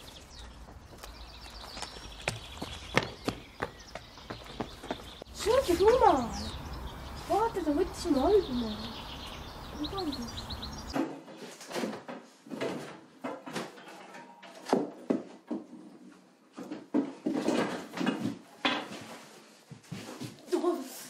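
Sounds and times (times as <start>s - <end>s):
rustling of handled things: 11.0s - 21.0s.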